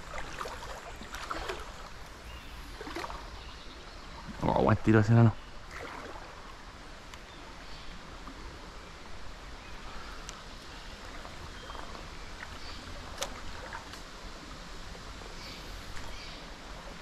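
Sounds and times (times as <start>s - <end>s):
flowing canal water: 0.0s - 17.0s
faint clicks: 10.2s - 10.4s.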